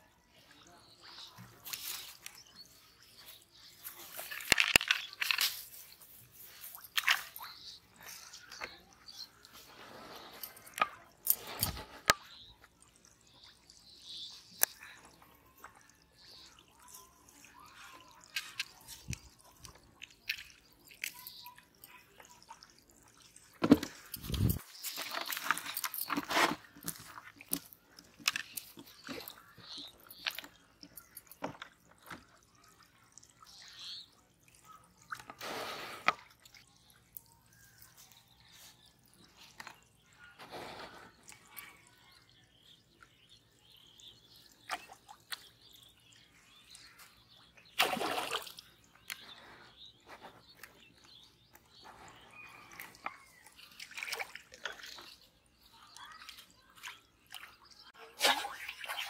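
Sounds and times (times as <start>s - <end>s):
pond water splashes and drips: 0.0s - 59.0s
loud splashes: 47.8s - 48.6s.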